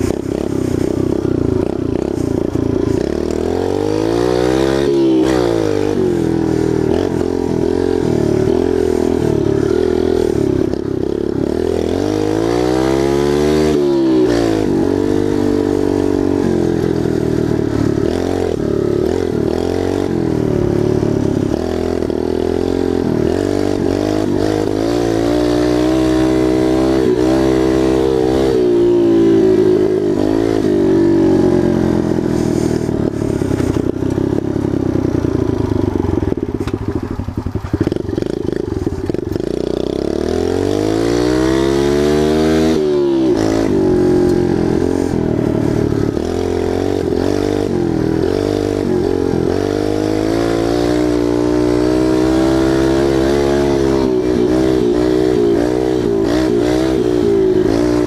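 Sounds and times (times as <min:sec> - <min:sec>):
tyres scraping on loose dirt: 0:00.0 - 0:03.3
dirt bike engine revving: 0:00.0 - 0:58.0.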